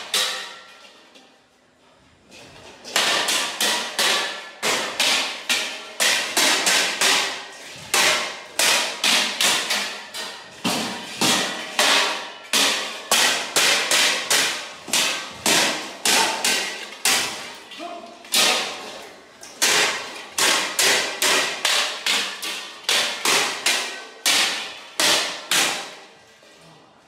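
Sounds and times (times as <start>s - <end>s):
swords clanging on metal shields: 0.0s - 1.1s, 2.6s - 26.1s.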